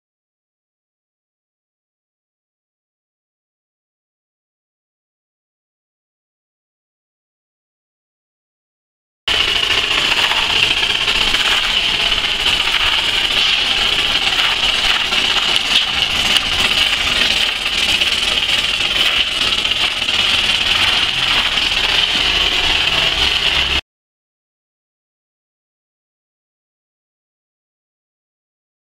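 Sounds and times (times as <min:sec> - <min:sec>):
machine rumble: 0:09.3 - 0:23.8
spray gun loud hiss: 0:09.3 - 0:23.8.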